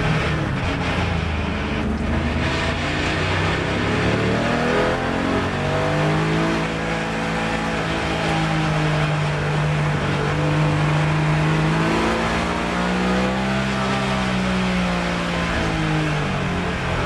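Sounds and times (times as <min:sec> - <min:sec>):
race car engine accelerating: 0:00.0 - 0:17.0.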